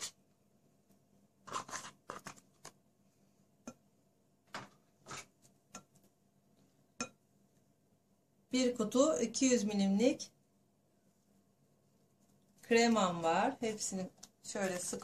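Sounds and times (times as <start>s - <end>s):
spatula scraping glass bowl: 1.4s - 2.4s.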